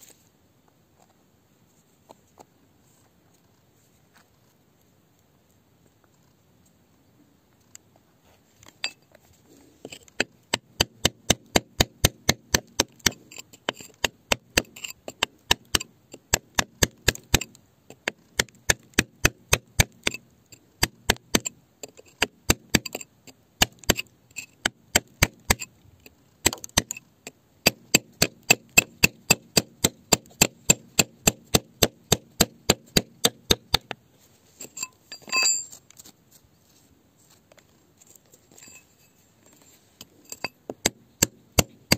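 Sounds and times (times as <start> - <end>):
hammer striking chisel: 9.9 - 20.2, 20.8 - 25.7, 26.4 - 27.0, 27.6 - 34.0, 40.3 - 41.9
short ringing tone: 34.8 - 35.8.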